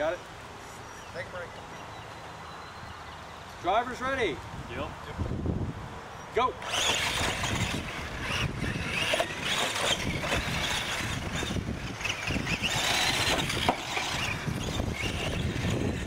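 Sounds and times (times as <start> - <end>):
rc truck motors whirring: 6.6 - 16.0
tyres scrabbling over dirt: 6.6 - 16.0.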